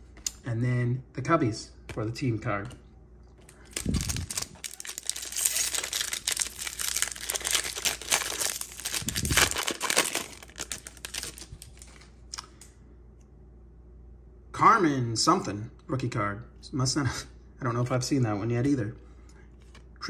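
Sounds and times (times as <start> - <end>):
card pack wrapper crinkling: 3.5 - 12.1.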